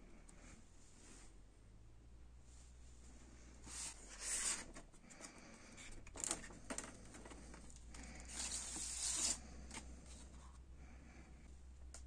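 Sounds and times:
cardboard sleeve sliding and rustling: 0:03.6 - 0:04.8, 0:08.2 - 0:10.5.

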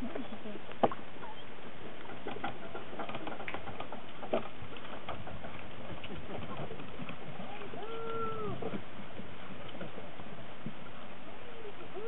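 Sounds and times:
dog feet pattering on bridge: 0:02.0 - 0:10.8.

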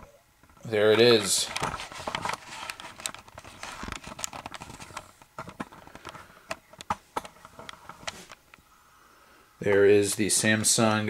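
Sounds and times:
packaging rustling: 0:01.0 - 0:08.4.

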